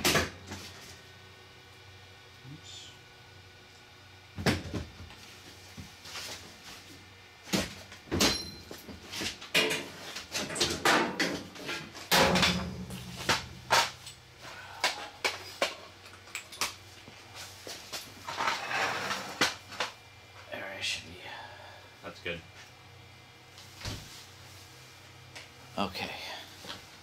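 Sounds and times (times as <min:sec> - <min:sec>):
knocks and rattles of light stand: 0:07.5 - 0:14.2.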